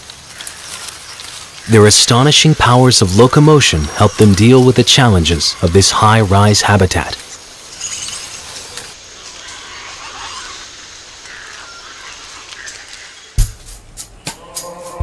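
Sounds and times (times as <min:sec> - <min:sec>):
steady forest hiss: 0:00.0 - 0:15.0
faint animal calls: 0:07.7 - 0:13.4
low thump: 0:13.4 - 0:13.8.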